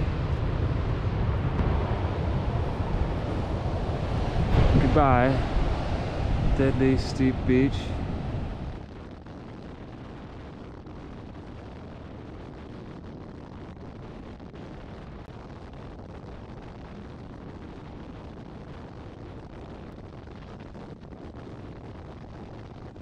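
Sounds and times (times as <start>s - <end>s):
road noise: 0.0s - 8.8s
wind rumble on microphone: 0.0s - 23.0s.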